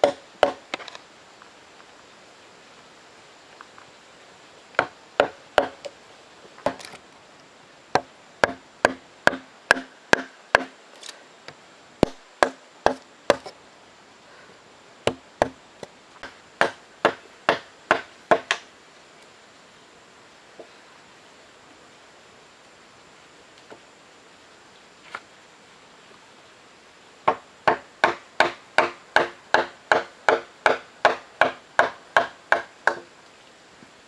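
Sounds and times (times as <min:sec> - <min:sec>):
wooden mallet striking chisel: 0:00.0 - 0:00.6, 0:04.8 - 0:05.9, 0:08.0 - 0:10.7, 0:12.0 - 0:13.5.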